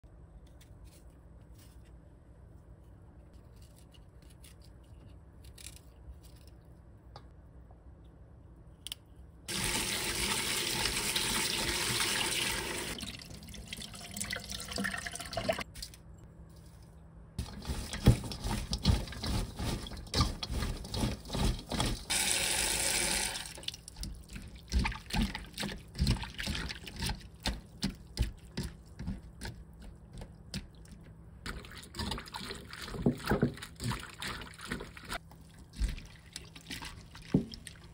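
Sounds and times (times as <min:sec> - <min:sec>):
hands kneading wet vegetable strips: 0:15.6 - 0:22.1, 0:23.4 - 0:37.9.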